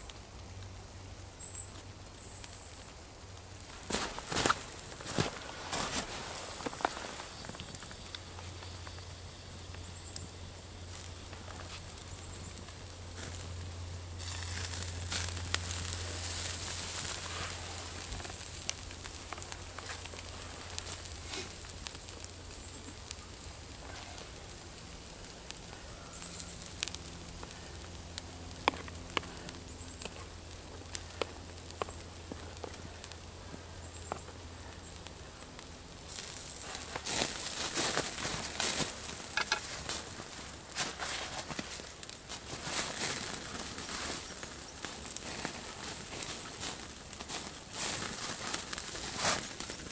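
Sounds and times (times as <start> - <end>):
campfire crackling and popping: 0.0 - 49.9
footsteps in dry leaves: 3.6 - 10.0, 10.8 - 34.2, 36.1 - 49.9.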